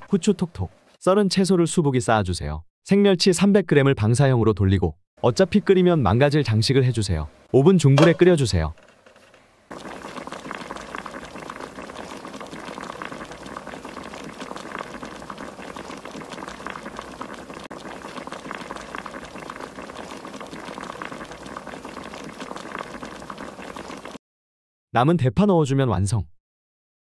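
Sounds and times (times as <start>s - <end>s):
broth bubbling and popping: 9.7s - 24.2s.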